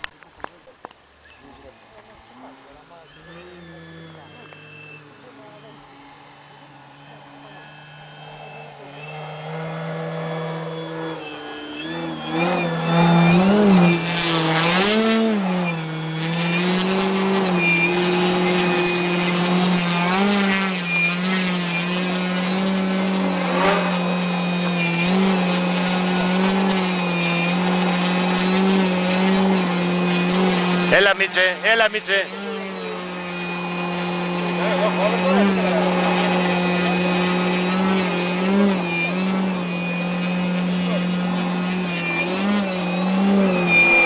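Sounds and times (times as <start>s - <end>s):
model plane propeller and motor: 0.0s - 44.0s.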